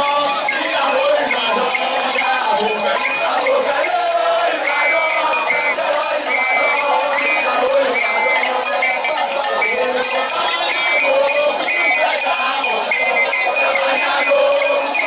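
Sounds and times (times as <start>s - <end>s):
crowd chanting and shouting: 0.0s - 15.0s.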